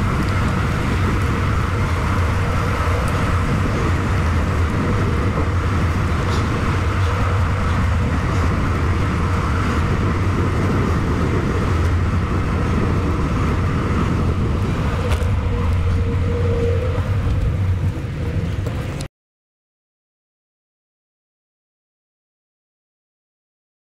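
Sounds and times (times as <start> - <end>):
bicycle tyres rolling on pavement: 0.0 - 19.1
wind rumble on microphone: 0.0 - 19.1.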